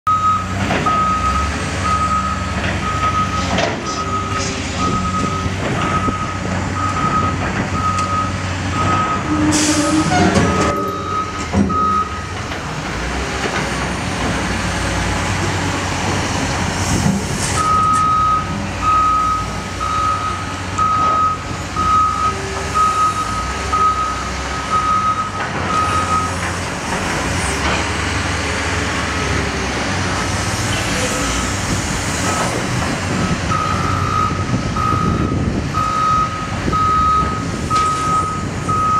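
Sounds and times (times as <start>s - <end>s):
diesel engine running: 0.1s - 38.9s
backup alarm beeping: 10.5s - 12.3s, 33.5s - 38.9s.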